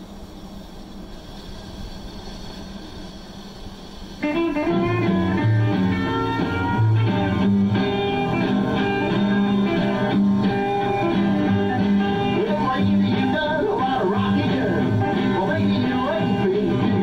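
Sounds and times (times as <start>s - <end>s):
record surface hiss: 0.0s - 17.0s
rockabilly guitar band recording: 4.2s - 17.0s.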